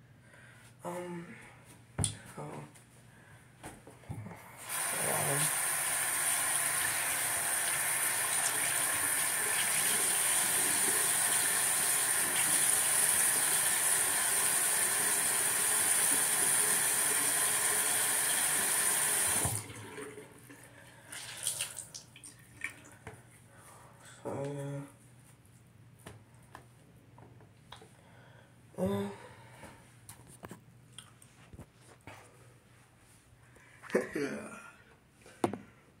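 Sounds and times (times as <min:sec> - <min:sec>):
tap water running into sink: 0:04.6 - 0:20.3.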